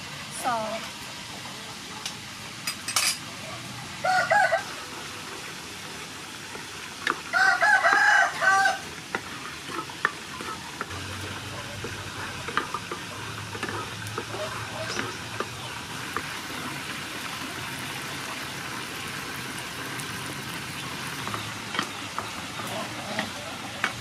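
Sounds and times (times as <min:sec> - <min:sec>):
meat sizzling in a pan: 0:00.0 - 0:24.0
rooster crowing: 0:04.0 - 0:04.8, 0:07.3 - 0:08.9.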